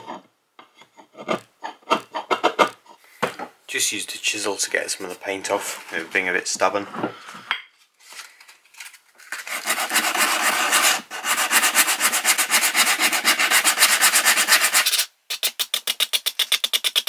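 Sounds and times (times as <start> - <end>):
sandpaper rasping on wood: 9.4 - 17.0.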